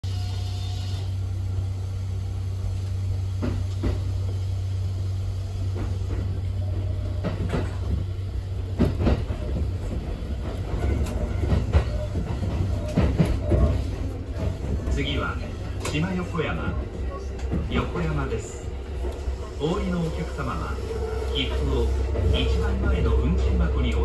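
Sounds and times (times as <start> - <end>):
electric train low hum: 0.0 - 24.0
wheel clacks over rail joints: 8.7 - 15.1.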